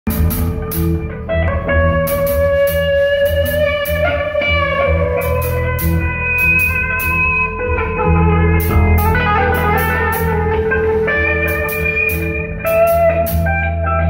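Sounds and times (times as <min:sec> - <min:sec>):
bass guitar line: 0:00.0 - 0:14.0
electric guitar held notes: 0:00.1 - 0:14.0.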